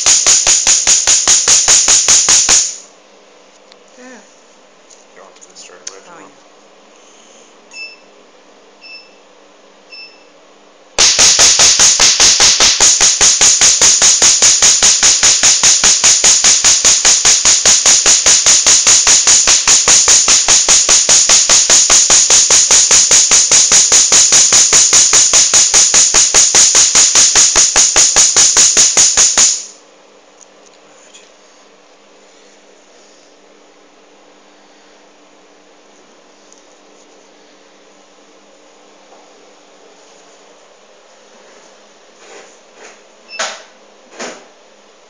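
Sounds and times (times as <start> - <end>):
laser snapping pulses: 0.0 - 2.9, 11.0 - 29.8.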